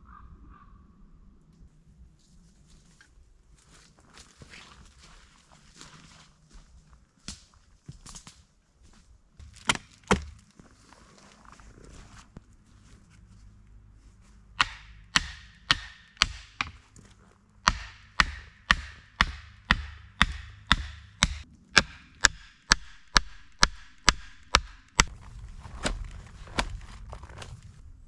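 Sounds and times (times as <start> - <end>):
chopping blows into wood: 9.5 - 10.4.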